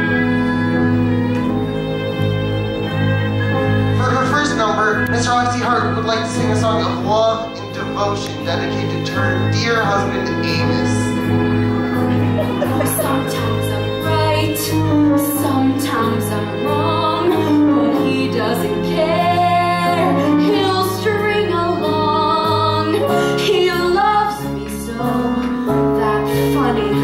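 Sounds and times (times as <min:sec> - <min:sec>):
instrumental accompaniment: 0:00.0 - 0:27.0
woman singing show tune: 0:11.9 - 0:27.0.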